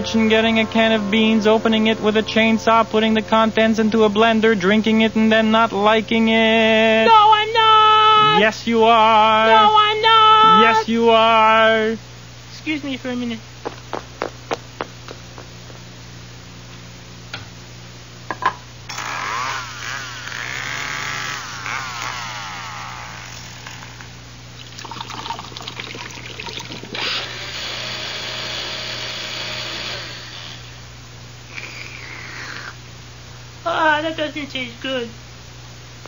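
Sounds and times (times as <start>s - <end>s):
footsteps: 13.6s - 15.9s
blender running: 18.9s - 24.1s, 26.6s - 30.8s
chainsaw revving: 18.9s - 24.2s, 27.0s - 30.8s
liquid pouring: 24.6s - 27.0s.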